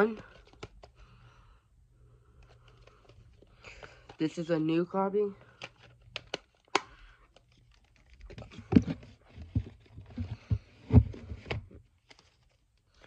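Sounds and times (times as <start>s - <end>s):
cd box clicks and rustling: 5.6s - 9.0s.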